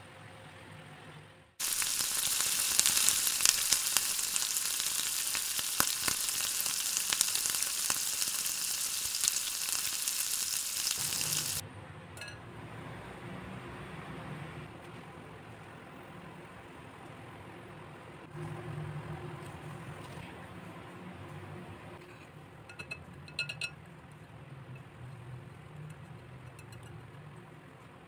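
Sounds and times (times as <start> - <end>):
meat sizzling in a frying pan: 1.6 - 11.6.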